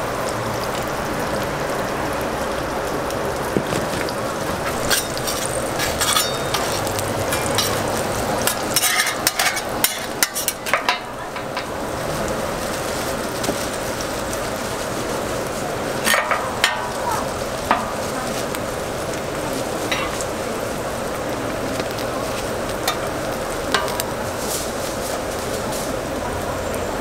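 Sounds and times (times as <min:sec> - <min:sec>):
patties sizzling on griddle: 0:00.0 - 0:27.0.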